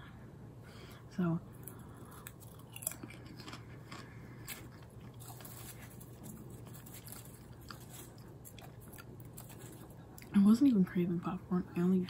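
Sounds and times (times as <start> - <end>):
person chewing popcorn: 1.4 - 10.4.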